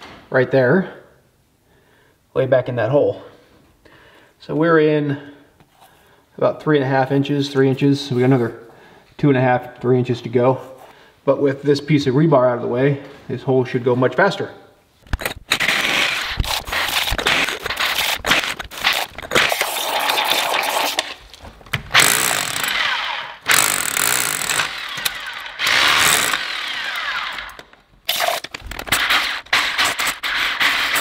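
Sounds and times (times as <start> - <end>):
rotary hammer drilling concrete: 15.1 - 21.2, 21.9 - 31.0.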